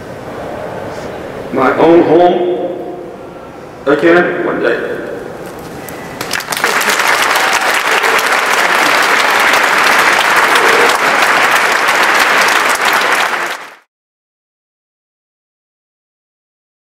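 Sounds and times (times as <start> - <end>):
audience applauding: 6.2 - 13.9.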